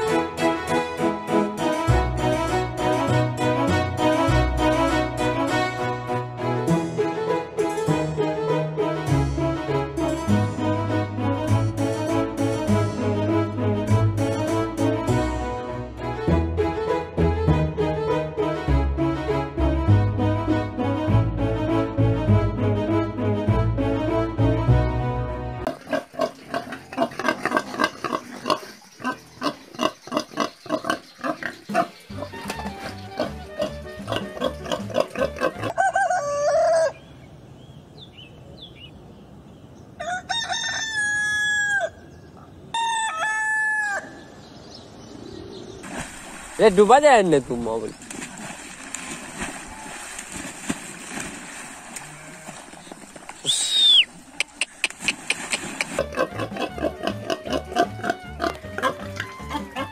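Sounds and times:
background music: 0.0 - 25.8, 30.7 - 35.8, 55.8 - 59.9
pig grunting: 25.7 - 32.3, 33.2 - 35.7, 55.9 - 59.9
splashing water: 25.7 - 35.7, 45.8 - 57.2
high whistle-like tone: 53.4 - 54.2.

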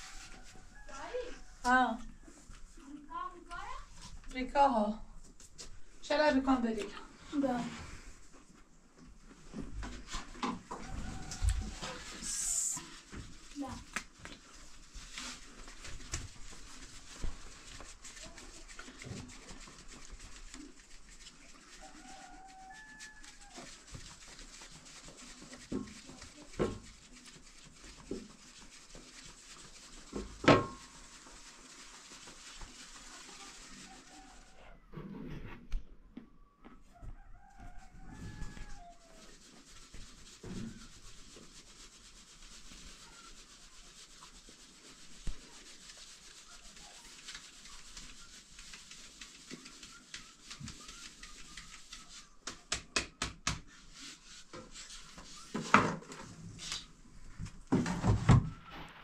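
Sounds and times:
steady rubbing: 0.0 - 1.6, 9.4 - 35.7, 37.4 - 52.6, 53.8 - 57.8.

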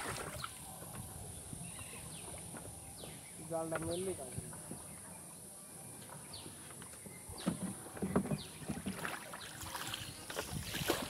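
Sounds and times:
water splashing and dripping: 0.0 - 0.6, 8.6 - 11.0.

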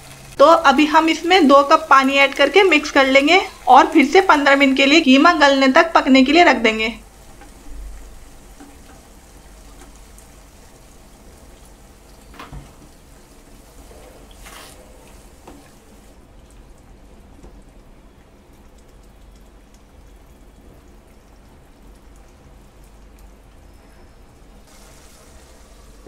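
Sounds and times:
meat bubbling in a pan: 7.0 - 26.0
wooden spatula scraping a pan: 13.6 - 15.9.

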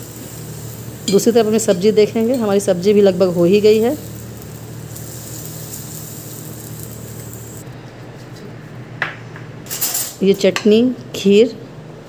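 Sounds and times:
curry simmering hiss: 0.0 - 7.7.

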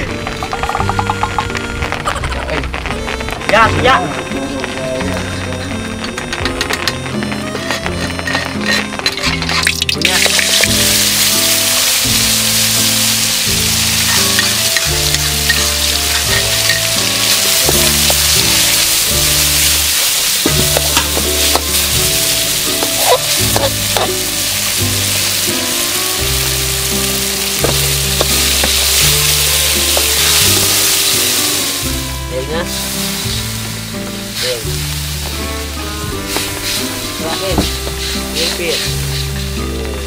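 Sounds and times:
background music: 0.0 - 40.0
food sizzling in a wok: 0.0 - 40.0
utensil stirring and scraping: 7.5 - 24.2, 36.1 - 39.6.

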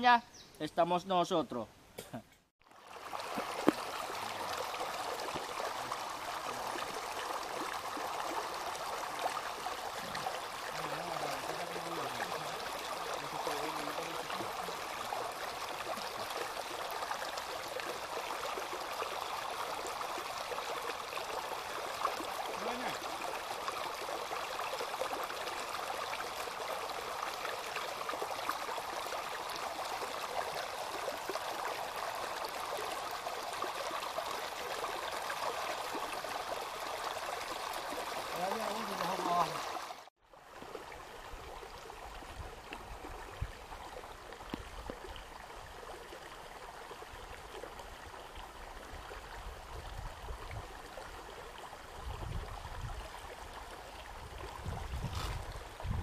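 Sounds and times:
water rushing over rocks: 2.7 - 41.4.

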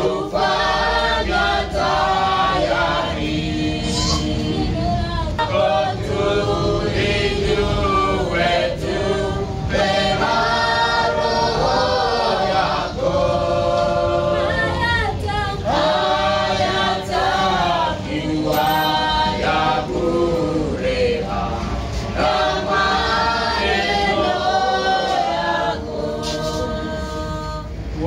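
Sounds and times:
group singing a hymn: 0.0 - 28.0.

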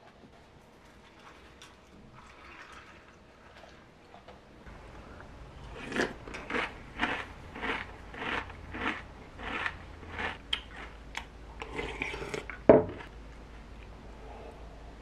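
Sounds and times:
cereal being chewed: 5.7 - 13.1.

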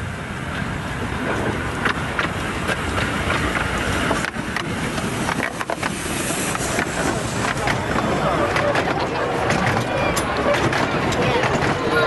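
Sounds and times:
miniature steam train rumbling: 0.0 - 12.0.

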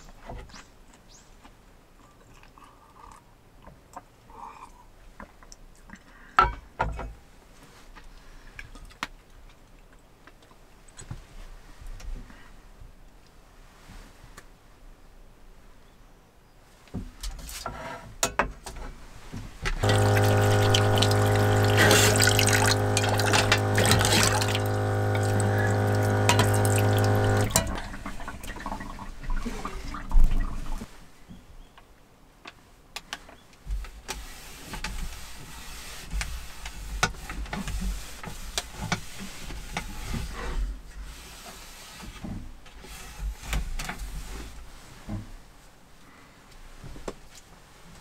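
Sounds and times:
electric pump humming: 19.8 - 29.0
water pouring into a bowl: 19.8 - 30.1
cloth wiping a wooden table: 34.2 - 37.0.

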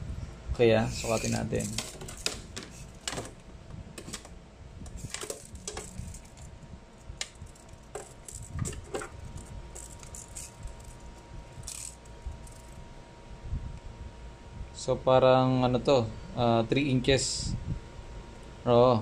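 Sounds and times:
tape measure clicking and rattling: 0.9 - 3.4, 4.0 - 4.3, 4.9 - 12.8
tape measure tapping on metal: 1.0 - 3.3, 4.9 - 6.5, 7.1 - 11.0.

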